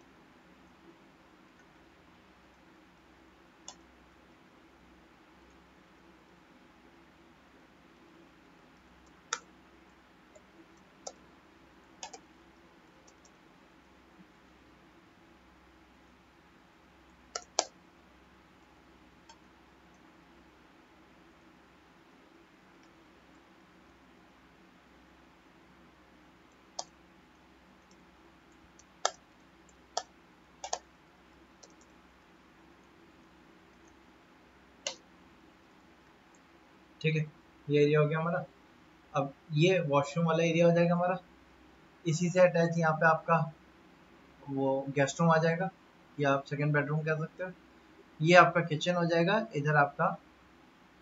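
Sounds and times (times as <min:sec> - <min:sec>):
faint low hum: 0:00.0 - 0:51.0
computer mouse and keyboard clicks: 0:03.6 - 0:03.9, 0:09.0 - 0:09.5, 0:10.3 - 0:11.2, 0:12.0 - 0:12.3, 0:13.0 - 0:13.4, 0:17.1 - 0:17.8, 0:26.5 - 0:30.9, 0:31.6 - 0:32.0.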